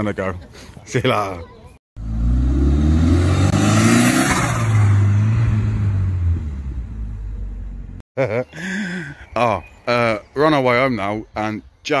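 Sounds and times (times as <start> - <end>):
car engine passing by: 2.0 - 7.8.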